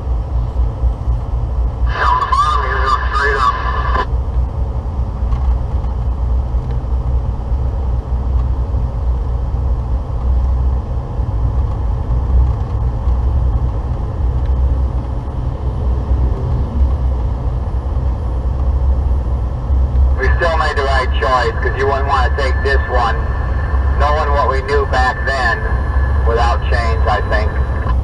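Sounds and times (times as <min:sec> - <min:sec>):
truck diesel engine rumble: 0:09.4 - 0:28.0
tyres on the road: 0:11.9 - 0:28.0.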